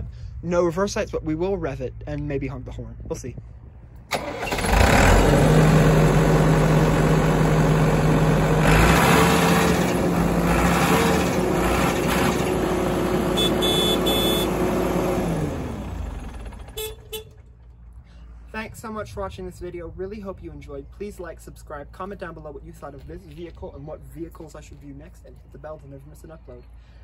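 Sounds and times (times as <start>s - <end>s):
diesel engine running: 4.1s - 18.0s
horn honking: 13.2s - 14.8s, 16.6s - 17.4s.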